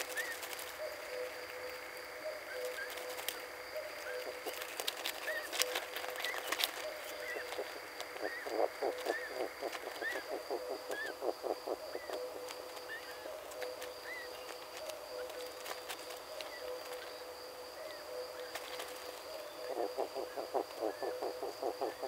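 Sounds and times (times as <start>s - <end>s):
night animal chorus calling: 0.0s - 18.6s, 19.4s - 22.0s
clicks and rustles: 4.4s - 8.2s
rapid croaking pulses: 6.3s - 12.2s.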